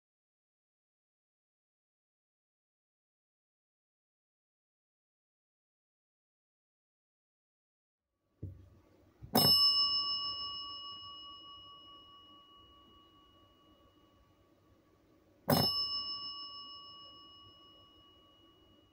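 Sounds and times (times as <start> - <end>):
desk bell ding: 9.3 - 14.4, 15.5 - 18.9.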